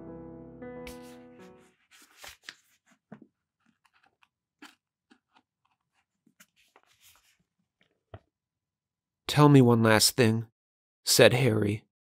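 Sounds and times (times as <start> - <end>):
background music: 0.0 - 1.8
book pages turning: 0.9 - 7.8.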